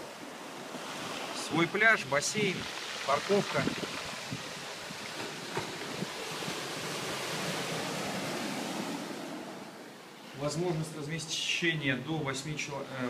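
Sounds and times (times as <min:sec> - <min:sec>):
waves washing onto pebble beach: 0:00.0 - 0:09.4.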